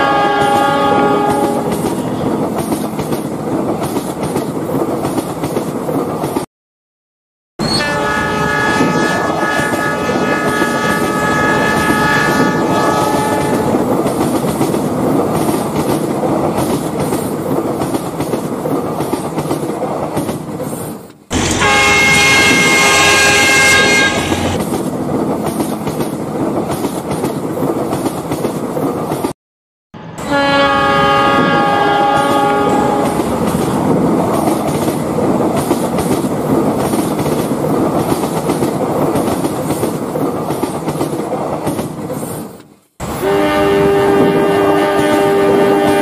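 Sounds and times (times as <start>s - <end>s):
train horn: 0.0s - 2.3s, 7.6s - 13.8s, 21.4s - 24.6s, 30.0s - 33.3s, 43.1s - 46.0s
passing train rumble and clatter: 0.0s - 6.5s, 7.8s - 29.4s, 30.0s - 46.0s.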